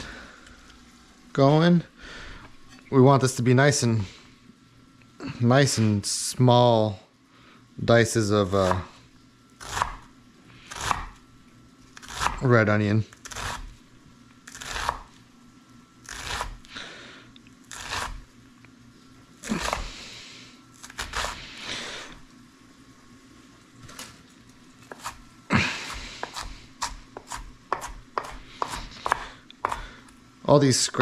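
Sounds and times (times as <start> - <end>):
knife slicing onion: 8.4 - 9.0, 9.6 - 11.2, 12.0 - 12.4, 13.1 - 13.8, 14.4 - 15.1, 16.0 - 16.7, 17.6 - 18.3, 19.4 - 19.9, 20.7 - 21.6, 24.8 - 30.1
knife tapping cutting board: 26.2 - 29.8.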